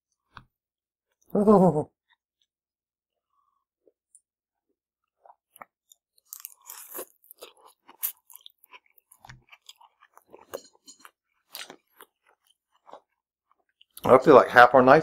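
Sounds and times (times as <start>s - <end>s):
chewing food: 3.3s - 14.1s.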